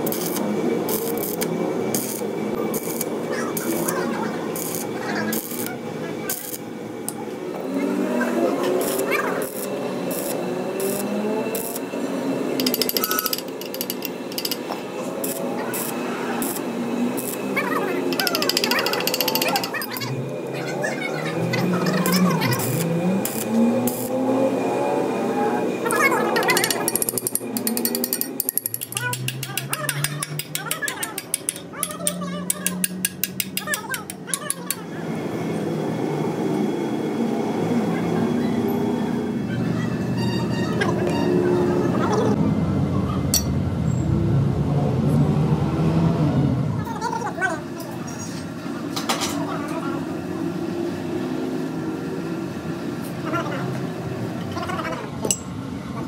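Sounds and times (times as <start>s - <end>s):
ratchet clicking: 0.0s - 3.9s, 12.6s - 16.6s, 18.1s - 20.1s, 25.9s - 34.8s
welding arc crackling: 0.0s - 6.8s, 8.7s - 11.9s, 12.6s - 20.3s, 22.0s - 24.2s.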